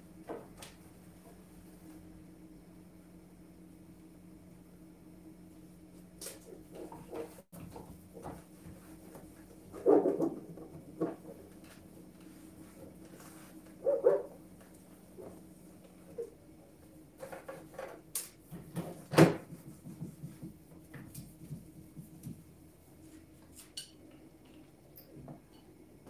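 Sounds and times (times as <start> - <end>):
sponge wiping microwave: 6.4 - 23.6.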